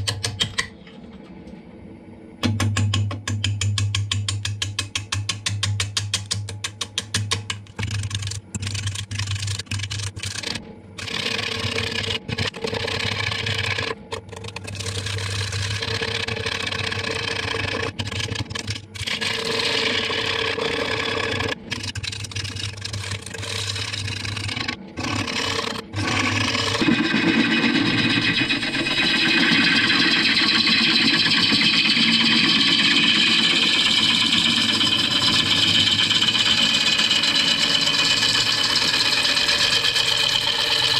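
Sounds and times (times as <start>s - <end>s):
gouge cutting wood on lathe: 10.2s - 40.9s
lathe motor humming: 10.2s - 40.9s.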